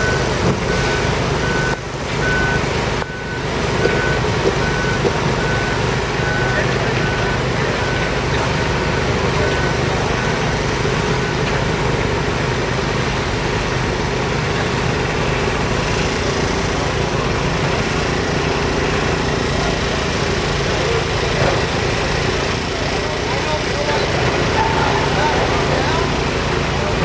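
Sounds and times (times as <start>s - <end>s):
backup alarm beeping: 0.0s - 10.5s
heavy machinery engines running: 0.0s - 27.0s.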